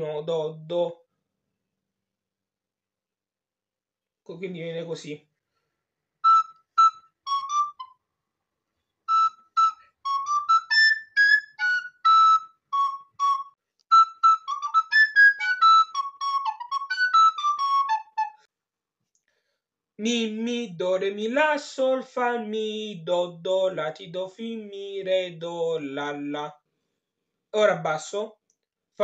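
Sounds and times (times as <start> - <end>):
plastic recorder played solo: 6.2 - 8.0, 9.1 - 18.5.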